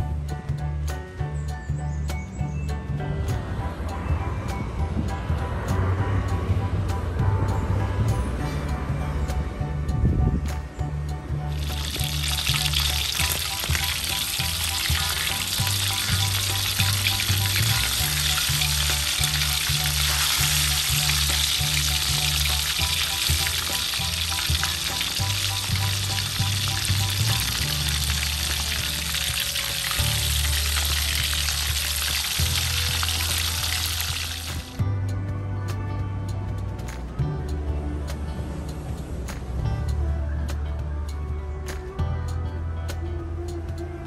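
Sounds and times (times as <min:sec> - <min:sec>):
background music with bass: 0:00.0 - 0:44.0
chicken sizzling in hot oil: 0:11.5 - 0:34.8.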